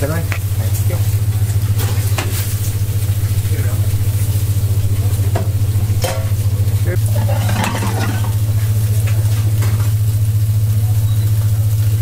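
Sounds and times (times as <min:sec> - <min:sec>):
fish sizzling on a grill: 0:00.0 - 0:12.0
metallic clatter: 0:07.0 - 0:08.8.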